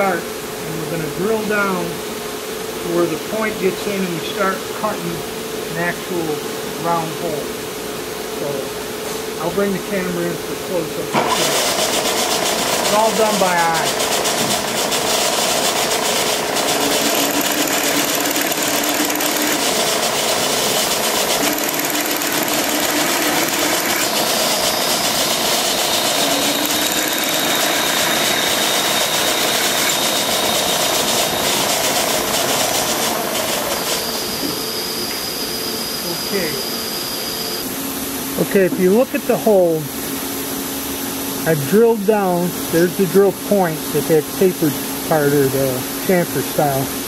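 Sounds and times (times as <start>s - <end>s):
drilling machine drilling metal: 11.1s - 37.5s.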